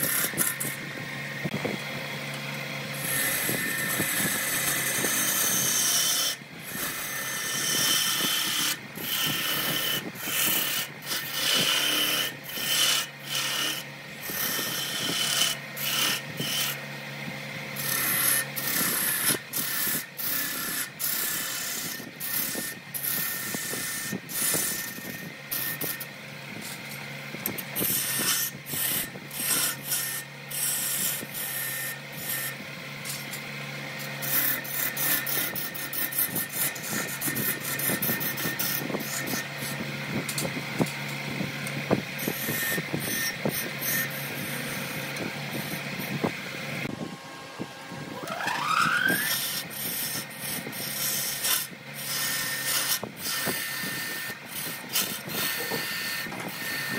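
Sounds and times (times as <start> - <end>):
turning tool scraping wood: 0.0 - 16.9, 17.8 - 47.0, 48.1 - 56.9
lathe hum: 0.0 - 56.9
rising squeal: 47.2 - 49.9.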